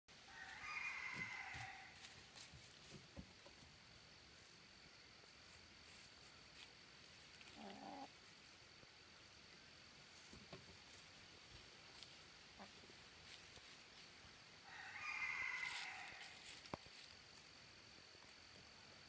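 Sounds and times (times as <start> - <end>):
hens clucking softly: 7.4 - 8.3, 12.5 - 13.0.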